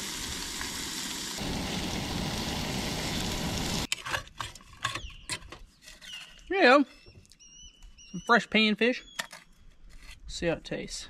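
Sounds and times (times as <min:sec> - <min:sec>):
fish sizzling in a pan: 0:00.0 - 0:03.9.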